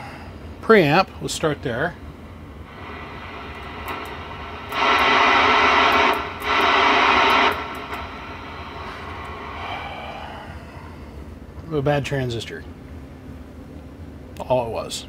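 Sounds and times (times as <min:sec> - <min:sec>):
low hum: 0:02.0 - 0:11.7
harsh static hiss from radio: 0:02.7 - 0:10.3.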